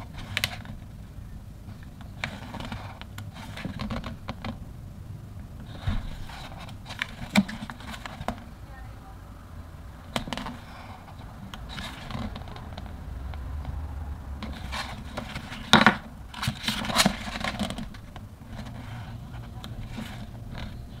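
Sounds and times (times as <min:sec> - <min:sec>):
steady low hum: 0:00.0 - 0:21.0
book pages turning: 0:14.4 - 0:21.0.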